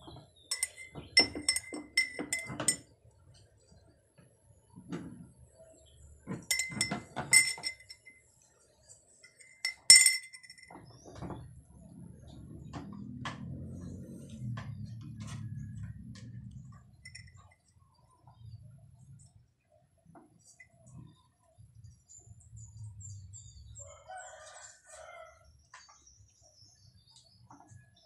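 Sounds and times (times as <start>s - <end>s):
spoon clinking against mug: 0.5s - 2.8s, 6.3s - 8.2s, 9.3s - 10.8s, 17.0s - 17.5s.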